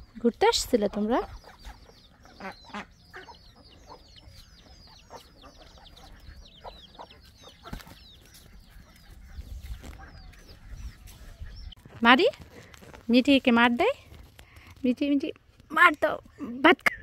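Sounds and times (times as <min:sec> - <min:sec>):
small birds cheeping: 0:00.0 - 0:12.2.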